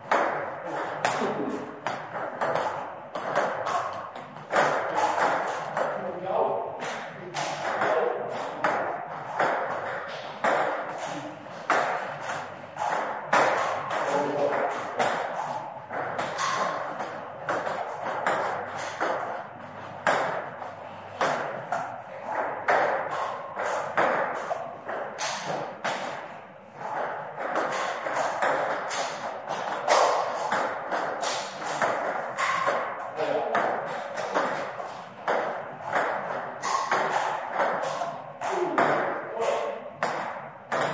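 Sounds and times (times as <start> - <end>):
table tennis balls clicking: 0.0 - 6.0, 21.2 - 40.9.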